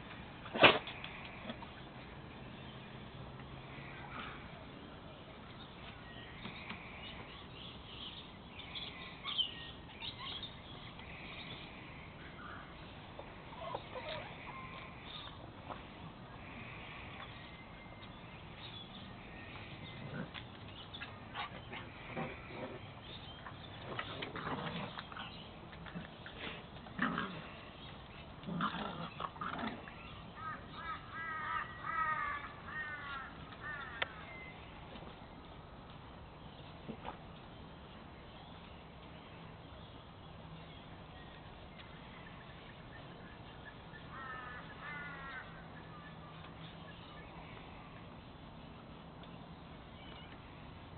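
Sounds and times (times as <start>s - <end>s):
puppies squeaking and yipping: 13.5s - 14.5s
dogs grunting: 19.6s - 20.4s, 23.9s - 27.8s, 28.4s - 30.1s.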